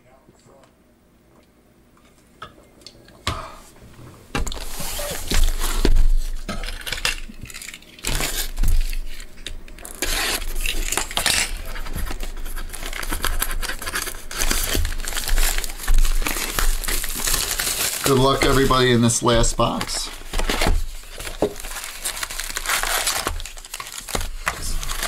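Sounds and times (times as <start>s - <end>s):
plastic wrap crinkling and tearing: 4.4s - 25.0s
cardboard rustling and tapping: 11.7s - 18.6s, 19.7s - 25.0s.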